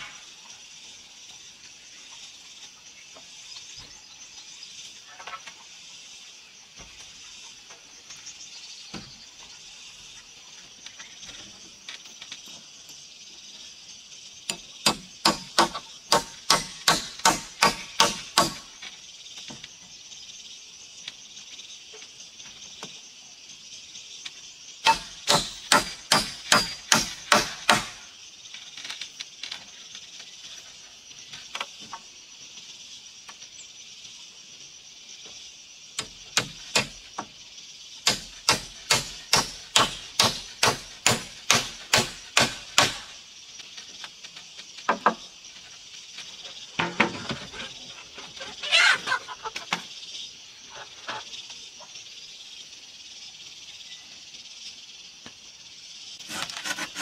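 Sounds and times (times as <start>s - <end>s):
hammer driving nails into wood: 14.5s - 18.7s, 24.8s - 28.0s, 38.0s - 43.1s.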